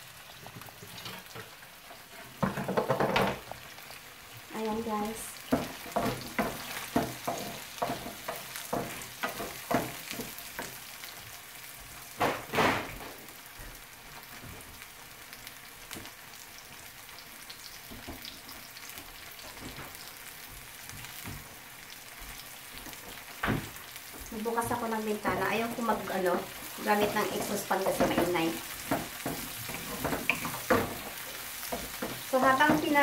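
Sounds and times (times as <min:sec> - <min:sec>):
onions sizzling in a frying pan: 0:00.0 - 0:33.0
wooden spatula scraping a pan: 0:05.6 - 0:10.8, 0:24.4 - 0:33.0.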